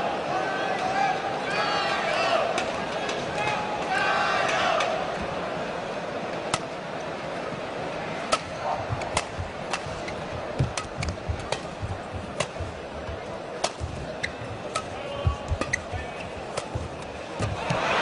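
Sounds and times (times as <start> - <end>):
crowd murmur: 0.0 - 18.0
racket hitting shuttlecock: 8.3 - 17.9.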